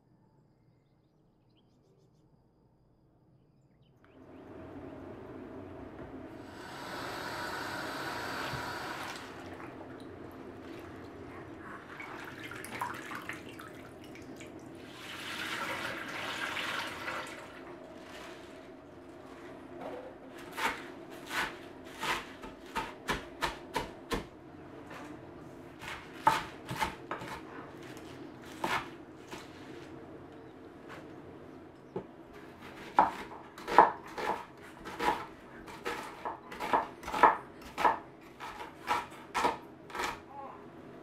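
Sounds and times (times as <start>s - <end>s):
running kitchen tap: 12.0s - 17.6s
knife chopping on wooden board: 25.8s - 27.4s, 32.8s - 40.2s.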